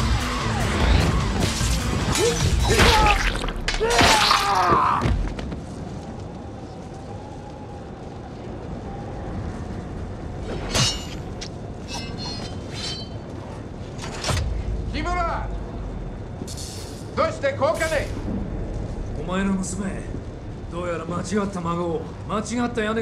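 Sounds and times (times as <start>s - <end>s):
film music: 0.0s - 3.9s.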